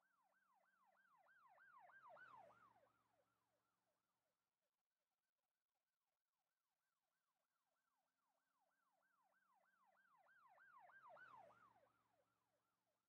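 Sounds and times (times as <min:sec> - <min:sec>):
faint emergency vehicle siren: 0:00.1 - 0:03.9, 0:07.8 - 0:12.9.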